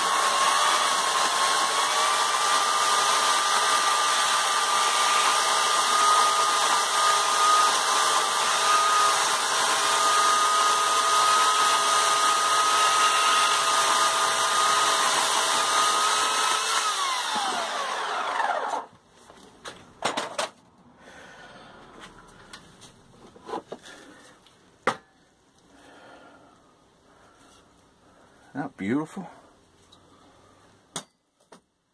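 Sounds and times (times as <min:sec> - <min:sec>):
electric chainsaw whining: 0:00.0 - 0:18.9.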